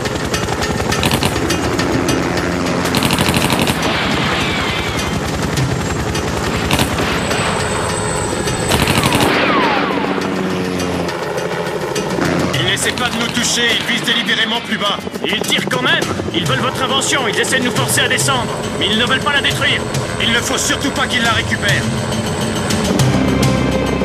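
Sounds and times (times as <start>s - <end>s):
helicopter rotors and engines: 0.0s - 24.0s
automatic gunfire bursts: 0.9s - 1.9s, 2.8s - 5.1s, 6.5s - 8.0s, 8.6s - 10.0s, 12.6s - 14.6s.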